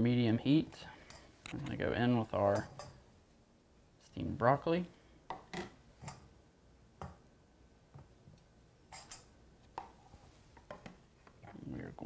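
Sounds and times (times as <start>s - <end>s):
spatula tapping and scraping metal bowl: 8.9s - 10.0s.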